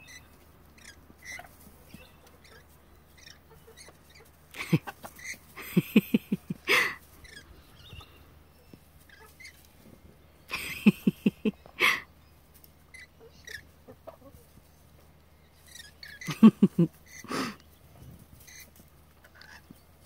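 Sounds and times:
hen cackling: 0.8s - 7.6s, 10.5s - 12.1s, 12.9s - 14.5s, 15.7s - 17.6s.

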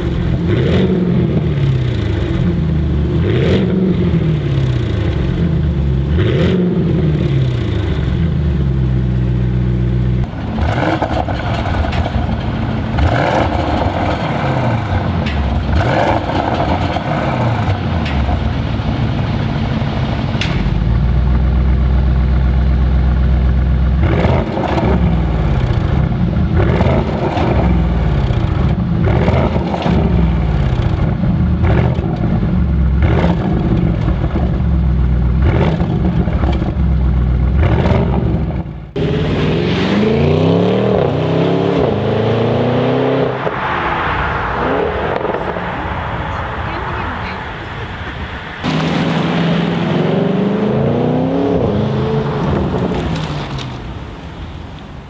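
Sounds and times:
car engine revving: 0.0s - 54.2s
car accelerating through gears: 39.0s - 47.9s, 48.6s - 53.6s.

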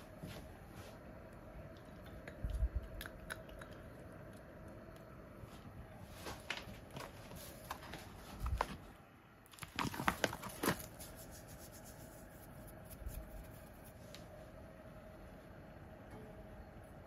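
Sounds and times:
faint steady hum: 0.0s - 17.0s
plastic pouch crinkling: 9.5s - 11.8s.

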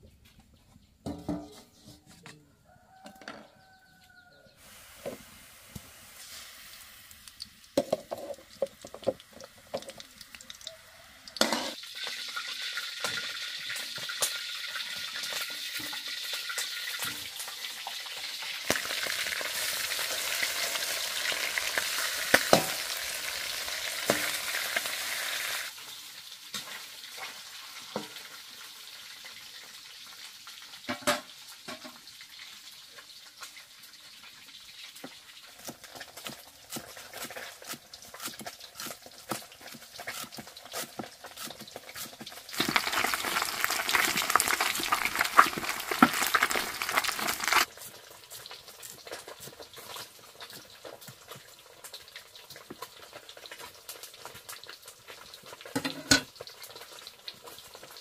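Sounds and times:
utensils knocking against pan: 1.1s - 1.8s, 11.4s - 11.8s
food sizzling in hot oil: 3.6s - 58.0s.

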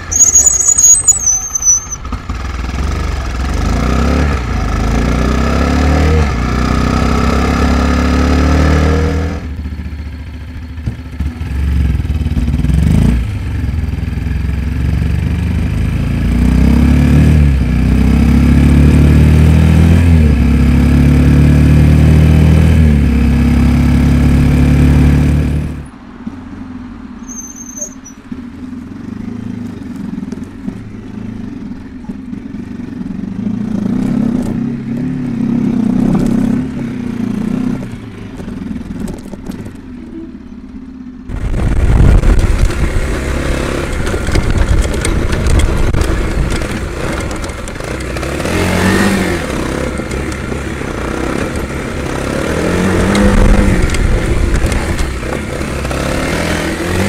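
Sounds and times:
brake squeal: 0.0s - 2.3s, 27.2s - 28.4s
motorcycle engine revving: 0.0s - 25.9s, 28.3s - 57.0s.

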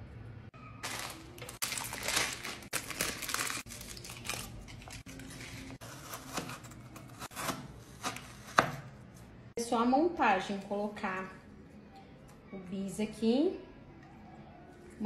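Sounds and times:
wrappers crackling and tearing: 0.8s - 5.8s.

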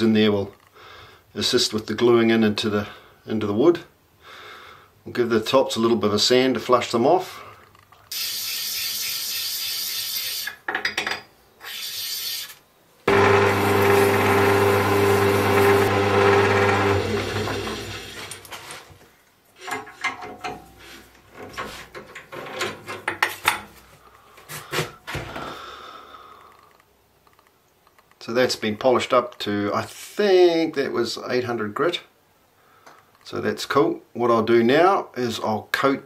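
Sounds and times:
machine motor humming: 13.1s - 18.3s
clicks and scrapes of handling: 18.2s - 25.3s.

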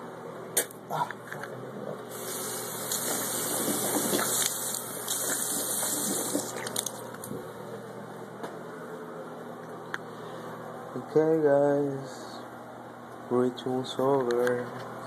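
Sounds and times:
water running into basin: 2.1s - 7.2s.

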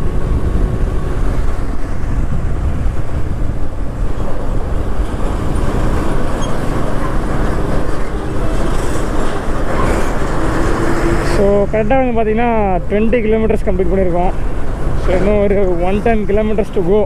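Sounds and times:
motorcycle road noise: 0.0s - 17.0s
wind buffeting microphone: 0.0s - 17.0s.

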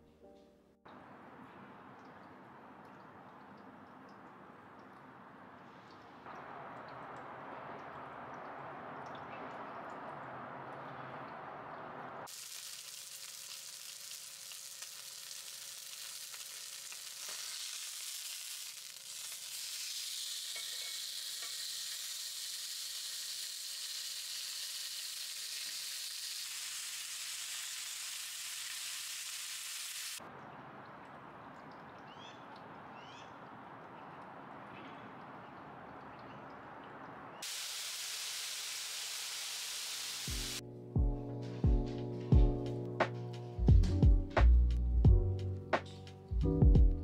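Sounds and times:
steak sizzling in skillet: 12.3s - 30.2s, 37.4s - 40.6s.

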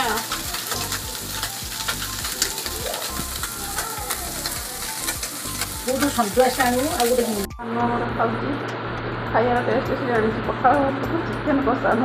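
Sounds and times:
food sizzling in oil: 0.0s - 7.5s
spatula scraping a pan: 0.1s - 7.3s.

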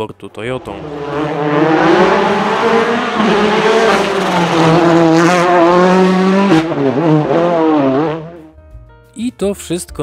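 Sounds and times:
rally car engine at high revs: 0.6s - 8.5s.

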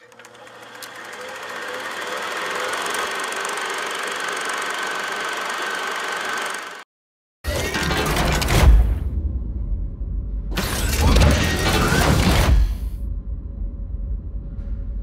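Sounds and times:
faint projector whine: 0.0s - 6.6s
film projector clatter: 0.0s - 6.8s.

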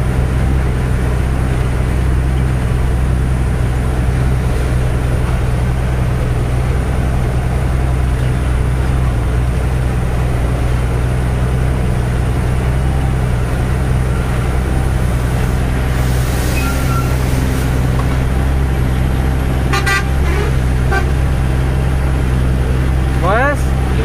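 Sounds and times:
truck engine drone: 0.0s - 24.0s
vehicle horn toots: 16.5s - 17.8s, 19.6s - 21.3s.

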